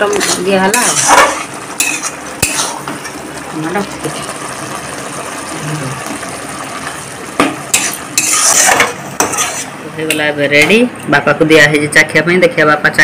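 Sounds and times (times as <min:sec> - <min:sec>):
gravy sizzling in a pan: 0:00.0 - 0:10.2
metal spatula scraping a pan: 0:00.1 - 0:03.0, 0:07.7 - 0:09.8.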